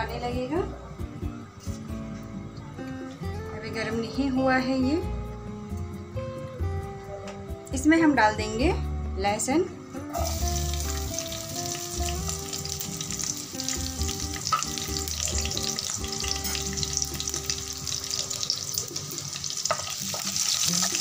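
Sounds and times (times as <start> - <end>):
garlic sizzling in hot oil: 10.1 - 21.0.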